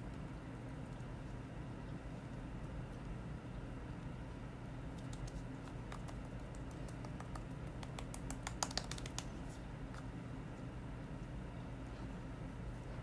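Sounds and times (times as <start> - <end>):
steady low hum: 0.0 - 13.0
fingertips tapping skin: 4.9 - 10.0.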